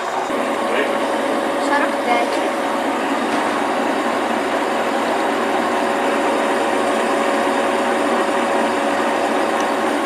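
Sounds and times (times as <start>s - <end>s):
metal lathe whirring: 0.0s - 10.0s.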